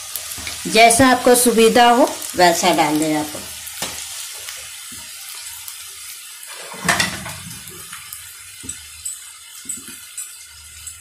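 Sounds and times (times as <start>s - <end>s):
food sizzling in oil: 0.0s - 11.0s
wok clatter: 6.4s - 11.0s.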